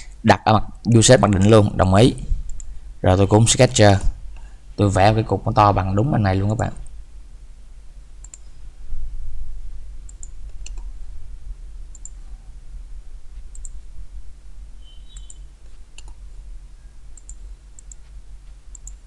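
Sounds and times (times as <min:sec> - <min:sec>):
low steady hum: 0:00.0 - 0:19.0
computer mouse clicking: 0:08.2 - 0:08.5, 0:10.1 - 0:10.9, 0:11.9 - 0:12.2, 0:13.5 - 0:13.8, 0:15.1 - 0:15.4, 0:16.0 - 0:16.2, 0:17.2 - 0:18.1, 0:18.7 - 0:19.0.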